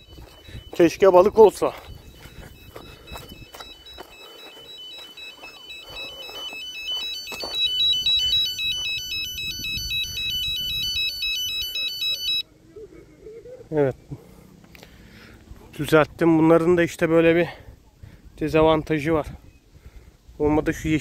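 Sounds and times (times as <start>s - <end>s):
bite alarm warbling beep: 0.0s - 12.4s.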